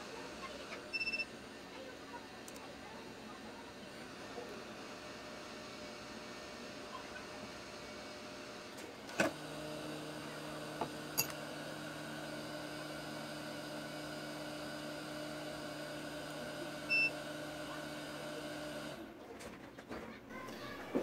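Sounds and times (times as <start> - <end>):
hot air blower humming: 3.4 - 19.0.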